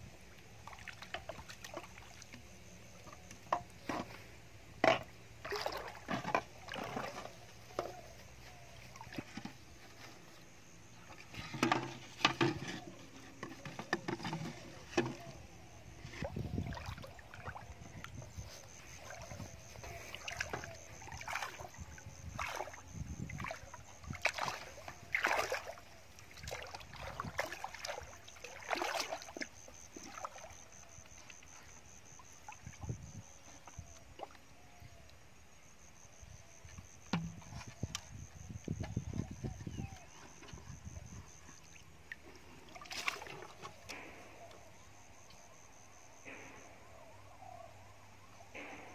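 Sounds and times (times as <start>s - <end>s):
water sloshing from wading: 0.0s - 48.9s
knocks and splashes: 0.6s - 4.2s, 4.8s - 10.2s, 11.0s - 34.4s, 36.8s - 45.1s
feet splashing in shallow water: 5.4s - 7.2s, 16.2s - 30.7s, 41.6s - 44.2s.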